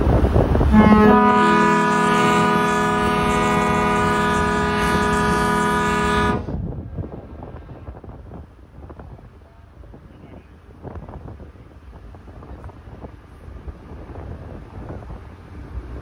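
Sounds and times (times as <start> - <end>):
ferry horn blast: 0.7 - 6.6.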